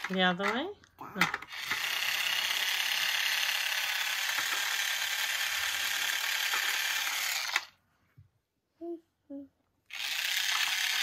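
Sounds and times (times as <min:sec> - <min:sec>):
toy drill whirring and rattling: 0:00.0 - 0:00.6, 0:01.2 - 0:07.8, 0:09.9 - 0:11.0.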